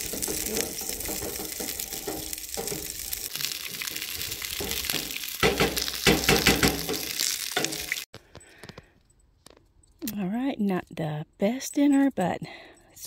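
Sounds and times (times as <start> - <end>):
sausages sizzling in a frying pan: 0.0 - 8.1.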